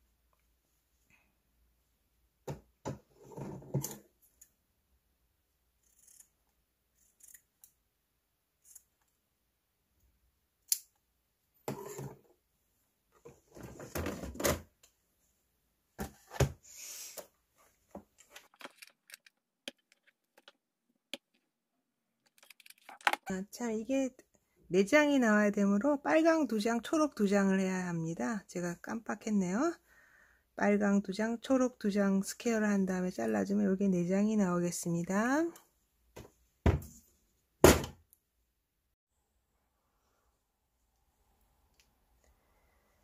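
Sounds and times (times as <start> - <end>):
tools clicking and knocking: 18.4 - 21.5.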